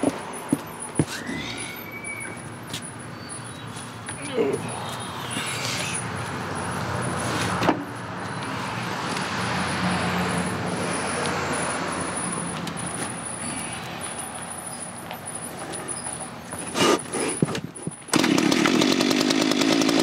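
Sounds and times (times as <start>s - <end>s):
small two-stroke engine idling: 18.1s - 20.0s.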